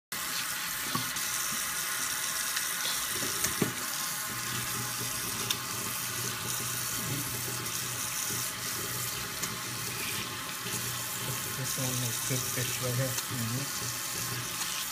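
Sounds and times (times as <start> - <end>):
faucet running into a sink: 0.2 - 14.9.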